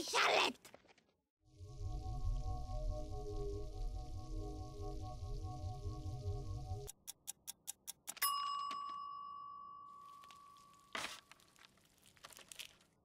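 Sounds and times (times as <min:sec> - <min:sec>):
timer ding: 0:08.1 - 0:10.8.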